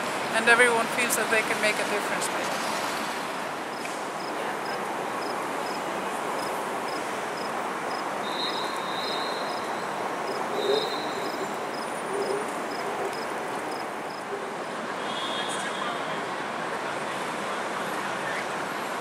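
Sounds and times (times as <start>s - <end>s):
distant city traffic: 0.0s - 19.0s
insect chirping: 6.4s - 14.2s.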